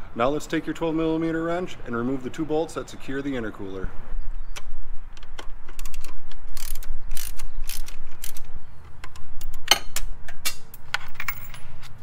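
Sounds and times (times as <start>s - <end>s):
ratchet wrench clicking: 5.8s - 8.5s.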